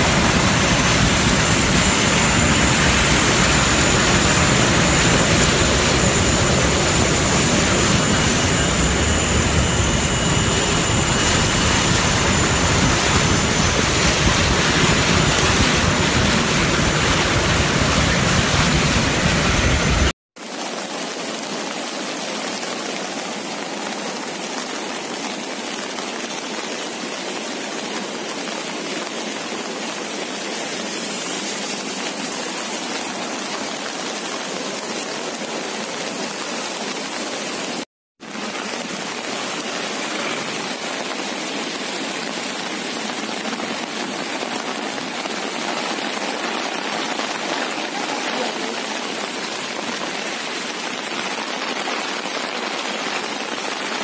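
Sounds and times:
floodwater rushing: 0.0 - 54.0
heavy rain: 0.0 - 54.0.

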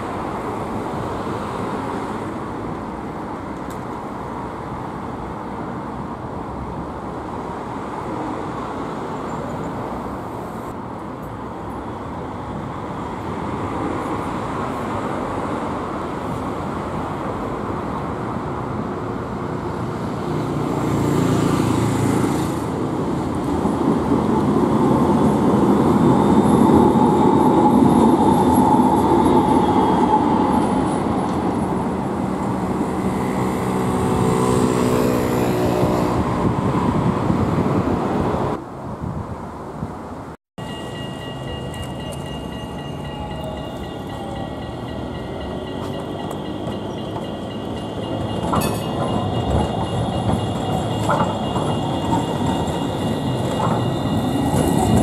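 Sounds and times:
tram passing with whine: 0.0 - 55.0
cars passing: 11.8 - 38.8.

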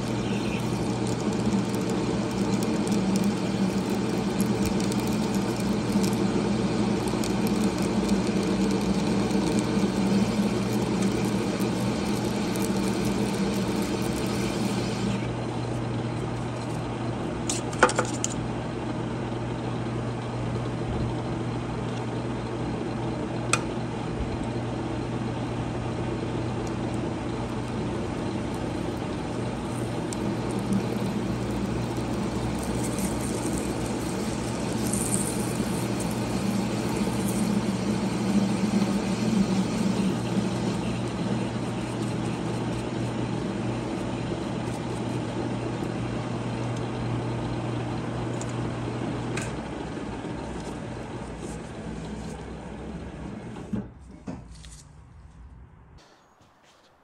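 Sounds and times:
motor hum: 0.0 - 54.0.

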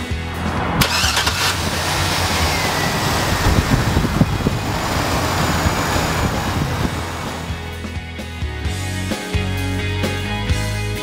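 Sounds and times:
truck engine running: 0.0 - 8.8.

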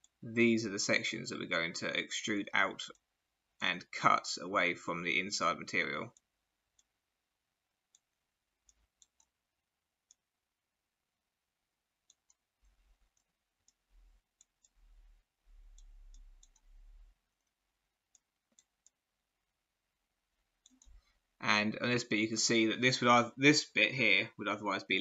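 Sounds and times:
computer mouse clicks: 7.9 - 9.4, 15.7 - 16.8, 20.6 - 21.1.

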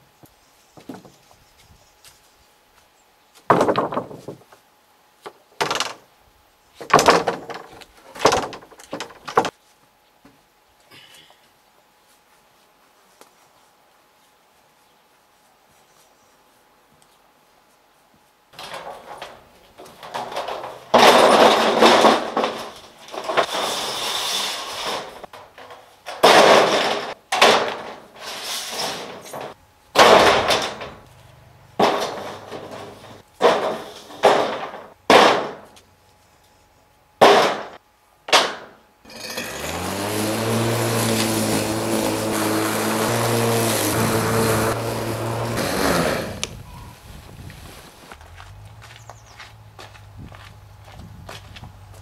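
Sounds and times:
metal roofing sheets crashing: 18.6 - 31.1, 31.8 - 35.7, 37.2 - 46.4
lawnmower motor running: 39.1 - 46.5.

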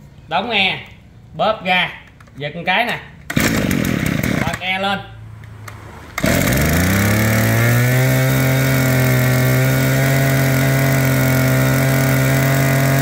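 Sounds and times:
brush-cutter engine running: 3.3 - 4.6, 6.2 - 13.0.

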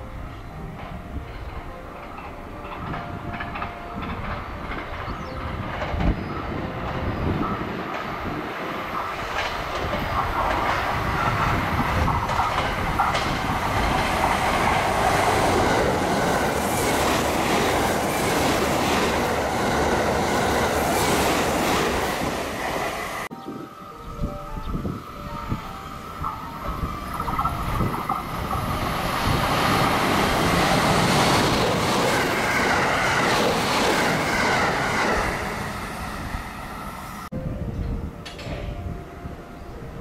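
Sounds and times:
electric train passing: 0.0 - 40.0
wheels clattering over rail joints: 0.8 - 22.3, 26.2 - 35.6.

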